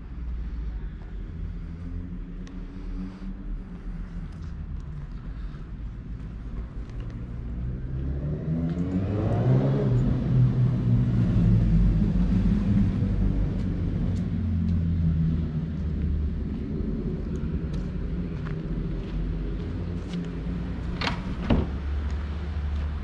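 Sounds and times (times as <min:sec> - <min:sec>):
car engine passing: 0:07.5 - 0:14.1.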